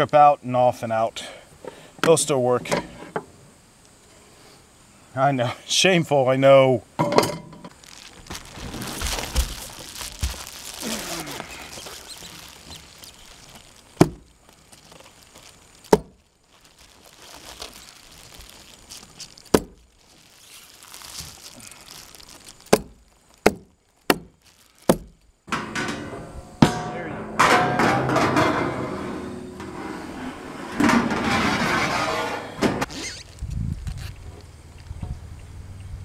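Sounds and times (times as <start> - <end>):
foil insulation crinkling: 7.6 - 25.4, 32.8 - 34.2.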